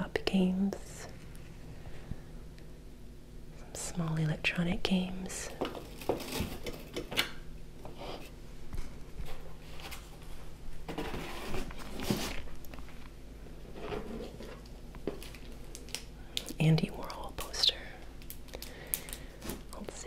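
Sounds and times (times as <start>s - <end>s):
cardboard boxes handled: 10.9s - 12.6s.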